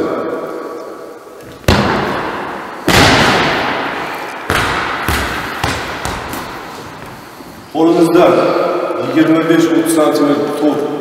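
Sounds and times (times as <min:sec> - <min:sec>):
volleyball bouncing on gym floor: 0:01.5 - 0:07.2
hand striking volleyball: 0:01.6 - 0:07.2.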